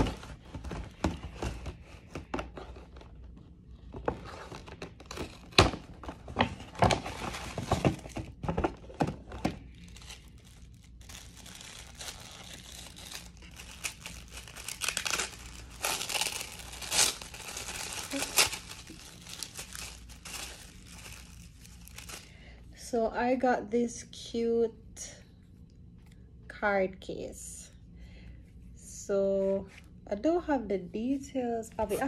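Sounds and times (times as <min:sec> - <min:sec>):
packaging crinkling and tearing: 0:04.2 - 0:22.4.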